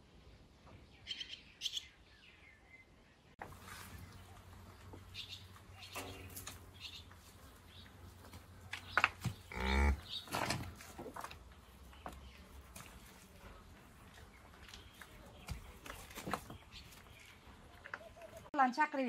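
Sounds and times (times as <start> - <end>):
cow mooing: 9.5 - 10.1.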